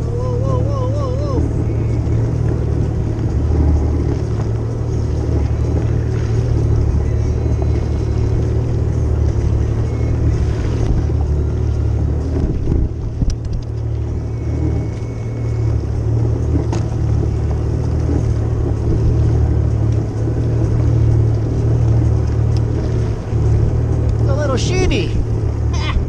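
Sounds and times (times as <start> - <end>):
jet ski engine idling: 0.0 - 26.0
light clicks: 13.2 - 13.9.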